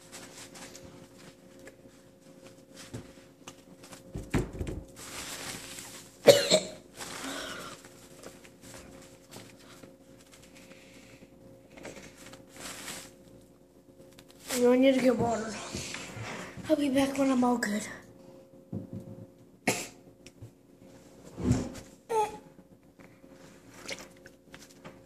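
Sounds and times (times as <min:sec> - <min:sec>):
boy coughing: 0:06.2 - 0:06.8, 0:19.6 - 0:20.0.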